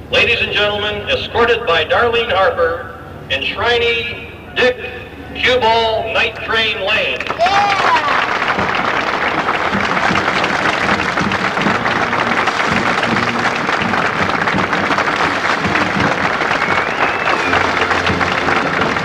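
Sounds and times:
stadium crowd applauding: 0:06.2 - 0:19.0.

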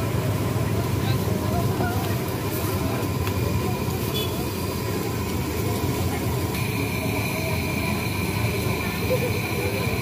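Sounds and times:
thin steady tone: 0:05.3 - 0:10.0.

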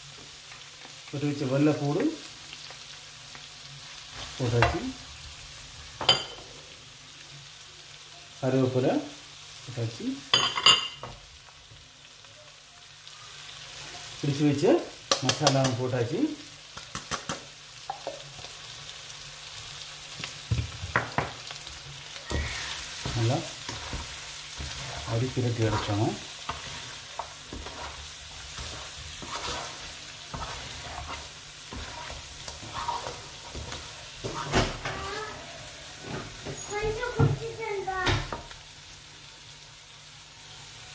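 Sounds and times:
garlic sizzling in oil: 0:00.0 - 0:40.9
spoon scraping pan: 0:21.6 - 0:36.8.

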